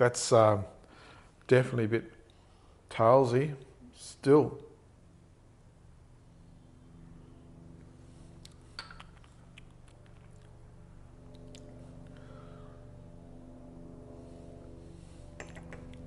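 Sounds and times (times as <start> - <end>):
steady low hum: 0.0 - 16.0
sharp clicks: 15.4 - 16.0.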